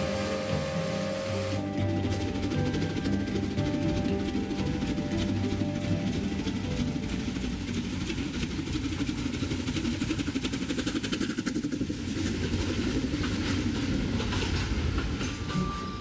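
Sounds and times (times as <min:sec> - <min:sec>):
steam train rattling: 0:00.0 - 0:16.0.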